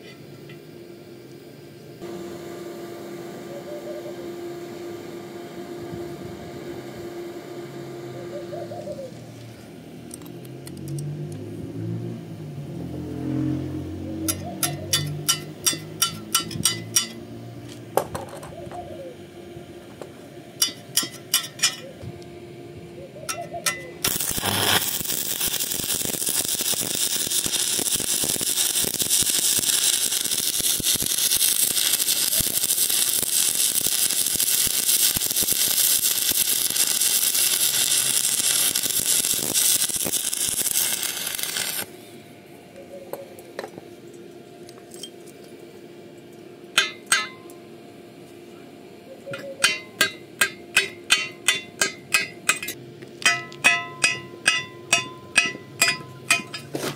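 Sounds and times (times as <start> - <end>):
welding arc crackling hiss: 14.2 - 17.2, 23.4 - 42.0, 49.3 - 56.9.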